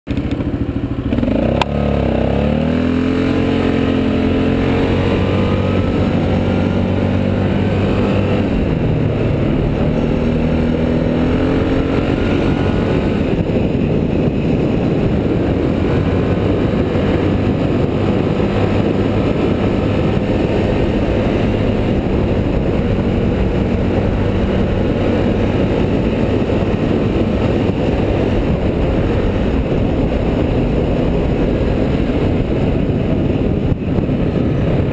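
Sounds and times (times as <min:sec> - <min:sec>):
atv engine revving: 0:00.1 - 0:34.9
heavy rushing noise: 0:00.6 - 0:34.9.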